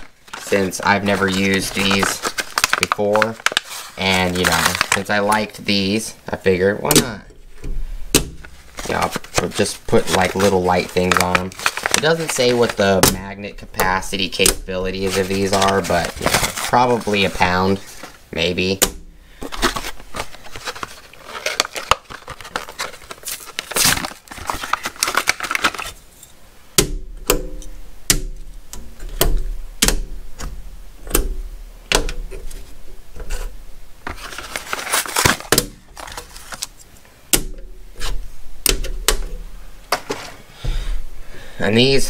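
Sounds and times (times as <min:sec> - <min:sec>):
plastic packaging crackling and tearing: 0:00.0 - 0:07.2, 0:08.1 - 0:26.3, 0:34.0 - 0:37.1.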